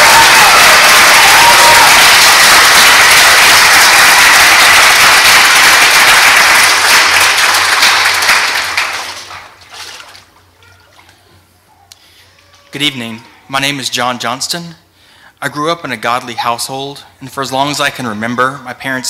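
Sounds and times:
congregation applauding: 0:00.0 - 0:09.6.

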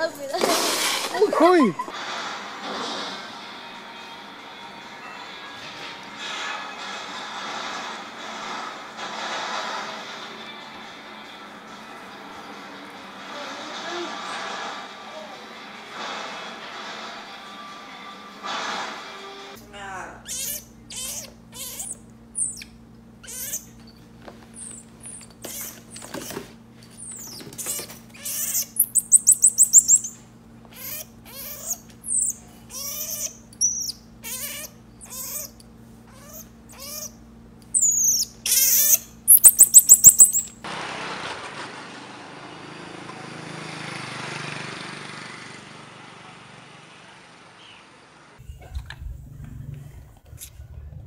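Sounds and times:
baby marmoset chirps and squeaks: 0:20.2 - 0:24.0, 0:24.6 - 0:26.0, 0:27.0 - 0:40.6
marmoset rapid trills: 0:20.3 - 0:23.7, 0:27.0 - 0:30.2, 0:30.8 - 0:35.6, 0:36.2 - 0:40.6
low steady hum: 0:48.4 - 0:51.0.

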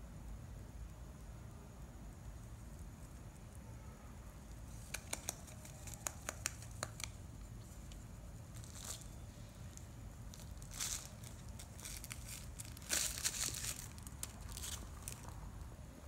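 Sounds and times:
rabbit biting cardboard tube: 0:04.7 - 0:07.5.

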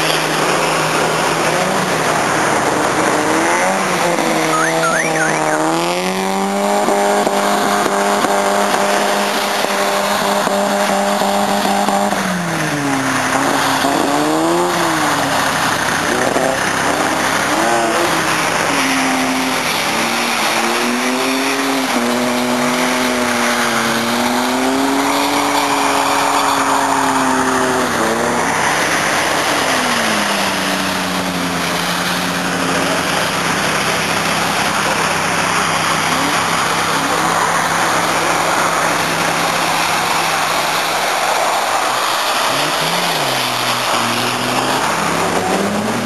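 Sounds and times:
car engines revving: 0:00.0 - 0:46.0
constant rushing noise: 0:00.0 - 0:46.0.

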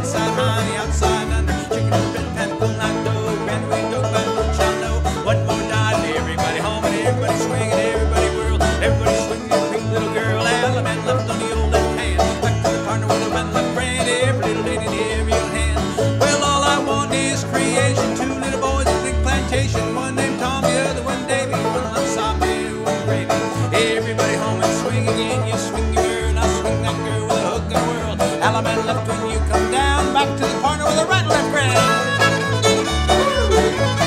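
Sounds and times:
acoustic guitar: 0:00.0 - 0:34.0
clawhammer banjo: 0:00.0 - 0:34.0
fiddle: 0:00.0 - 0:34.0
upright bass thumping: 0:00.0 - 0:34.0.

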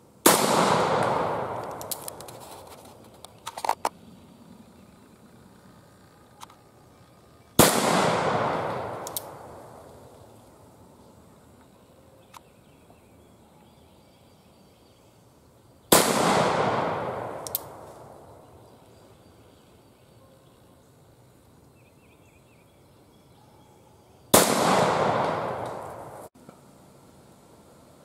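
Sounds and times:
revolver gunshots with echo: 0:00.2 - 0:02.0, 0:07.6 - 0:09.9, 0:15.9 - 0:18.4, 0:24.3 - 0:26.3.

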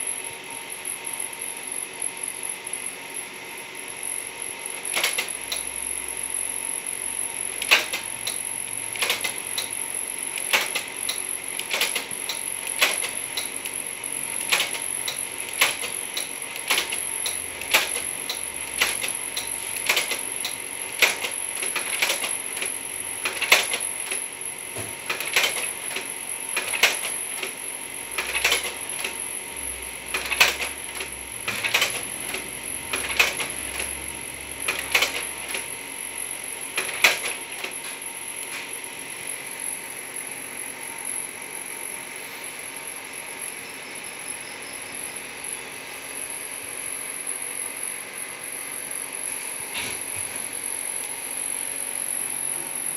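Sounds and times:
slide projector clicking: 0:04.9 - 0:05.7, 0:07.6 - 0:13.7, 0:14.4 - 0:24.2, 0:25.0 - 0:27.6, 0:28.2 - 0:29.2, 0:30.1 - 0:34.0, 0:34.6 - 0:35.6.

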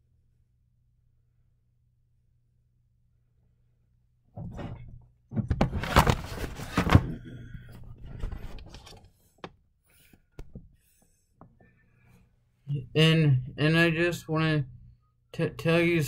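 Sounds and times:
knocks and thunks: 0:04.4 - 0:07.2
camera handling rustling and scraping: 0:05.6 - 0:09.2.

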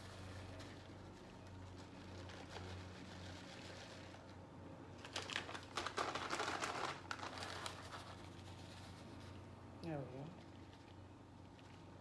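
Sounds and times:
crinkling handling noise: 0:00.0 - 0:09.4
faint steady hum: 0:00.0 - 0:12.0.

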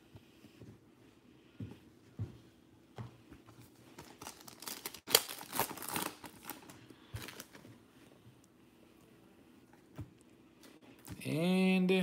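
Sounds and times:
foil wrapper crackling: 0:04.0 - 0:07.6.

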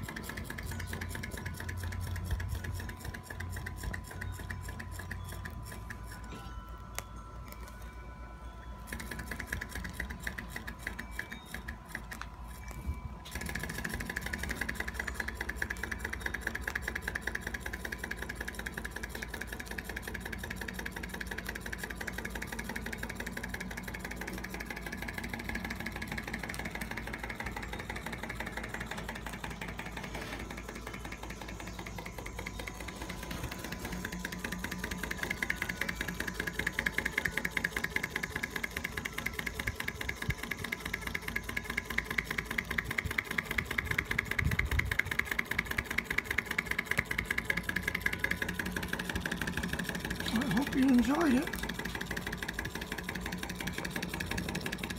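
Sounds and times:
model engine mechanical clatter: 0:00.0 - 0:54.9.

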